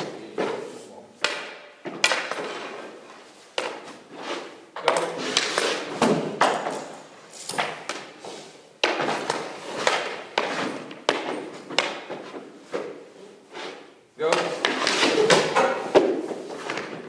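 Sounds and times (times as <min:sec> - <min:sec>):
hockey pucks knocking: 0:01.2 - 0:04.1, 0:04.7 - 0:08.2, 0:08.8 - 0:13.0, 0:14.2 - 0:17.0.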